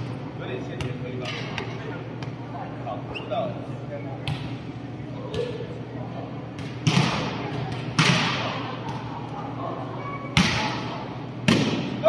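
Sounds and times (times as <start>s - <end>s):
volleyball smacks echoing: 6.6s - 9.1s, 10.3s - 12.0s.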